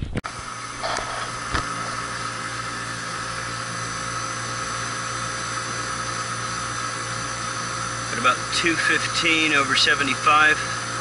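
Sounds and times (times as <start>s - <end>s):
air conditioner humming: 0.3s - 11.0s.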